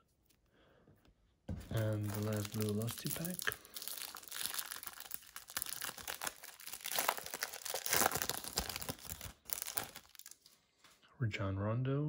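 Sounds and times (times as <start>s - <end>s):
cellophane crinkling and tearing: 1.6s - 10.6s.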